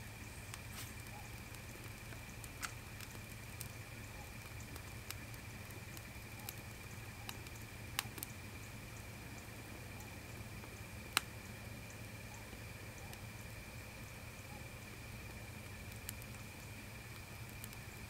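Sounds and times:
steady low hum: 0:00.0 - 0:18.0
wood fire crackling and popping: 0:00.0 - 0:18.0
faint steady high tone: 0:03.6 - 0:18.0.

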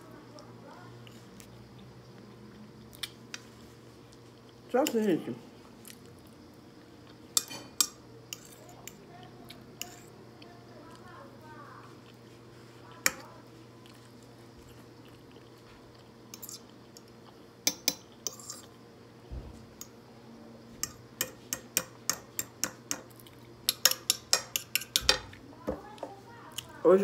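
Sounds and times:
faint low hum: 0:00.0 - 0:27.0
fork clicking on a plate: 0:07.4 - 0:09.0, 0:17.6 - 0:18.7, 0:20.8 - 0:25.3.

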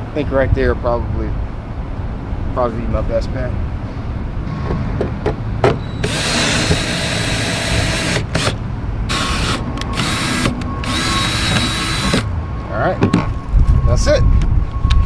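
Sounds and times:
cordless drill whining: 0:06.0 - 0:12.3.

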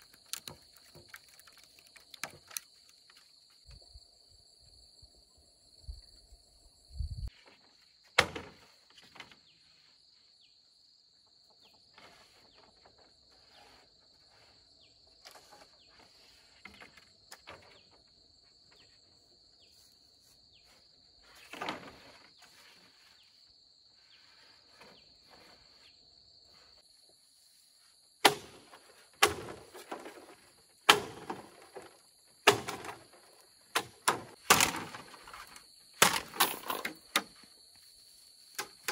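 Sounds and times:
bamboo poles rustling and clacking: 0:00.0 - 0:03.7, 0:07.3 - 0:09.6, 0:11.9 - 0:19.0, 0:20.7 - 0:23.4, 0:24.1 - 0:25.9, 0:28.2 - 0:38.9
insects chirring: 0:00.0 - 0:08.0, 0:08.7 - 0:38.9
loud knocks on bamboo: 0:28.2 - 0:30.3, 0:30.9 - 0:33.1, 0:33.8 - 0:35.1, 0:36.0 - 0:36.5.

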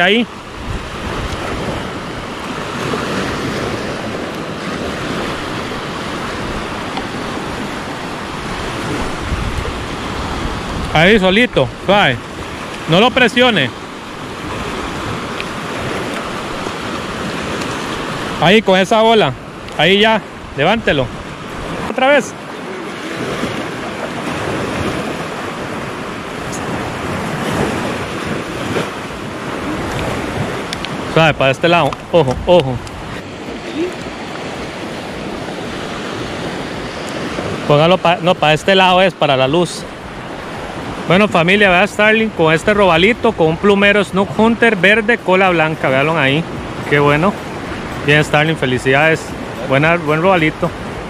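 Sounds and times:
wind rumbling on microphone: 0:00.0 - 0:12.9, 0:19.4 - 0:37.8
small waves breaking on beach: 0:00.0 - 0:51.0.

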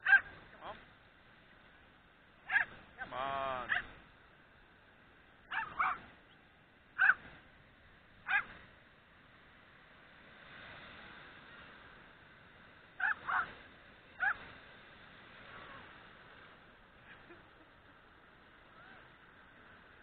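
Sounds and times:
dog yelping barks: 0:00.0 - 0:00.3, 0:02.5 - 0:02.8, 0:03.7 - 0:03.9, 0:05.5 - 0:06.1, 0:07.0 - 0:07.2, 0:08.2 - 0:08.5, 0:13.0 - 0:13.5, 0:14.2 - 0:14.4.

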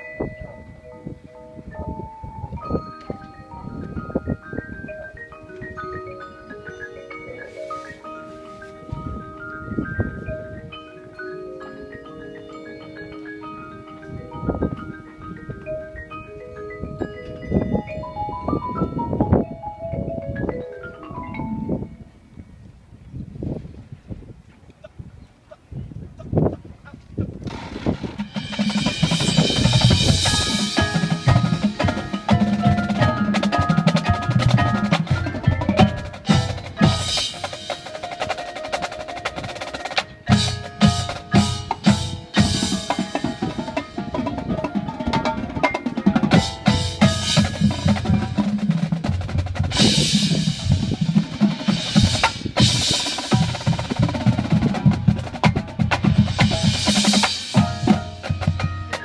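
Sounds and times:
marimba and keyboard: 0:00.0 - 0:23.2, 0:27.2 - 0:59.0
snare tenor and bass drums: 0:27.4 - 0:59.0.

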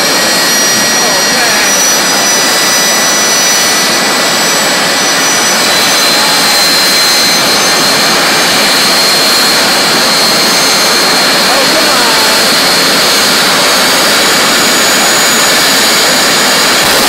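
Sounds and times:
thin high whine: 0:00.0 - 0:17.0
turbine engine rushing: 0:00.0 - 0:17.0.

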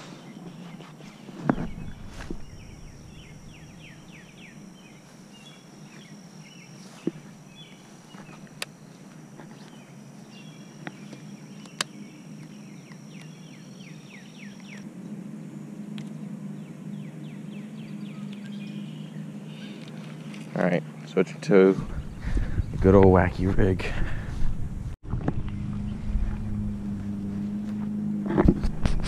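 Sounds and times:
birds chirping: 0:00.0 - 0:15.3, 0:16.0 - 0:23.4
high-pitched whine: 0:00.0 - 0:29.0
low rumble: 0:01.5 - 0:05.8, 0:24.1 - 0:27.9
sharp clicks: 0:11.6 - 0:13.4.

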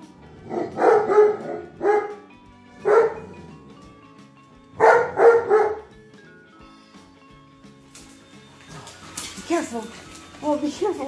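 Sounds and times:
dog barking: 0:00.4 - 0:03.4, 0:04.8 - 0:06.0.

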